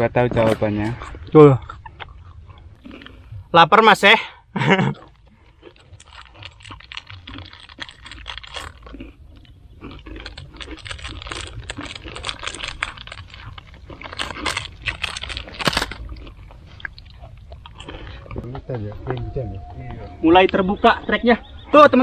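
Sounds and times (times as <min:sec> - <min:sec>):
crunchy chewing: 0:00.8 - 0:03.5, 0:04.6 - 0:20.8
plastic wrapper crinkling: 0:05.6 - 0:09.0, 0:10.2 - 0:16.0.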